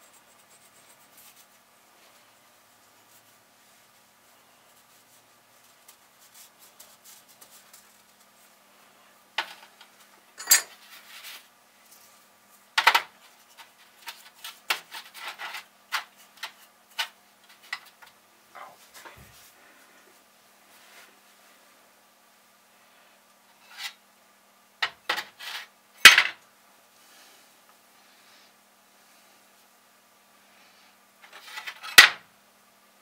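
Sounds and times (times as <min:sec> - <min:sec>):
small metal parts clinking: 0:10.4 - 0:10.8.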